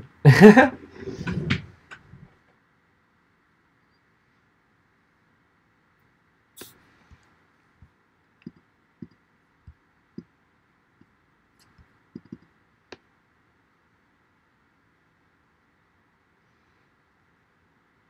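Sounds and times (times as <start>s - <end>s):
faint clicks and light knocks: 11.0s - 13.1s.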